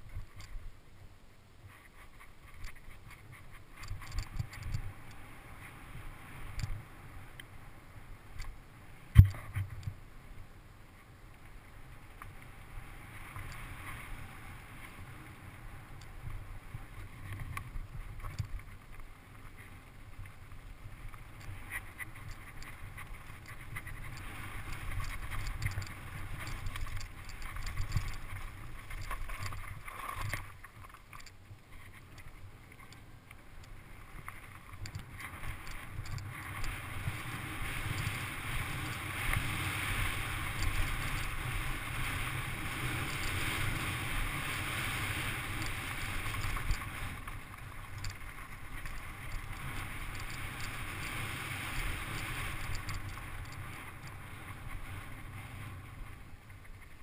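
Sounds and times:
small knocks and rattles: 21.4s - 33.0s.

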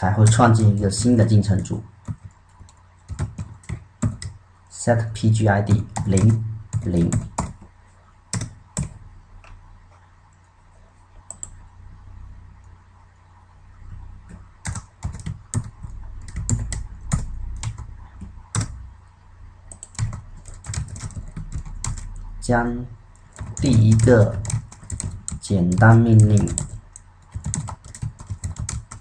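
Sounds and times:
steady low hum: 0.0s - 29.0s
typing on computer keyboard: 2.0s - 4.4s, 5.7s - 7.7s, 8.3s - 9.5s, 11.3s - 11.6s, 14.2s - 18.8s, 19.7s - 22.3s, 23.1s - 29.0s.

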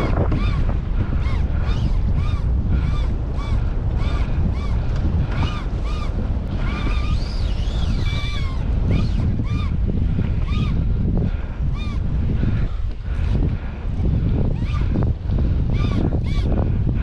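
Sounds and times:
fishing reel squealing: 0.0s - 10.9s, 11.6s - 12.1s, 14.5s - 16.6s
boat rumble: 0.0s - 17.0s
wind rumble: 0.0s - 17.0s.

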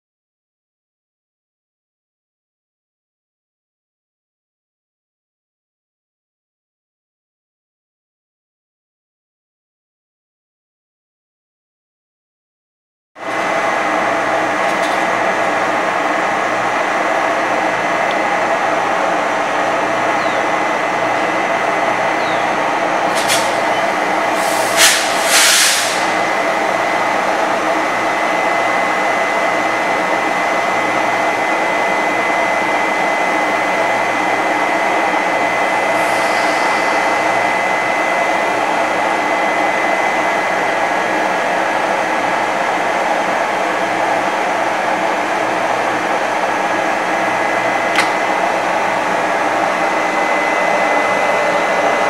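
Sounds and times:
locomotive cooling blowers whirring: 13.2s - 52.0s
short air hisses: 23.1s - 23.6s, 24.3s - 26.2s, 35.9s - 37.4s.

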